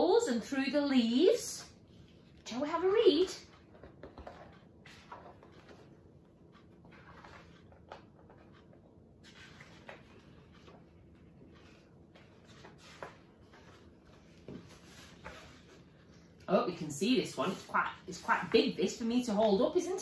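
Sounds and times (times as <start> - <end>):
paper pages rustling: 3.5 - 16.4.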